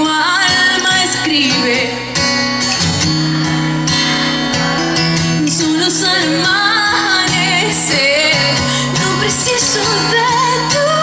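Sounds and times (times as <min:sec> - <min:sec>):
woman singing: 0:00.0 - 0:02.2, 0:05.4 - 0:11.0
acoustic guitar: 0:00.0 - 0:11.0.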